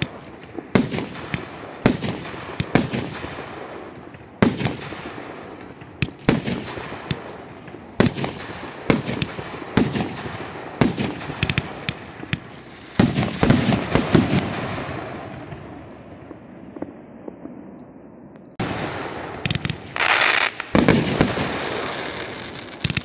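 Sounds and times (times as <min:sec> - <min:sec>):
fireworks bangs: 0:00.0 - 0:23.0
fireworks hiss: 0:10.8 - 0:15.2, 0:19.5 - 0:23.0.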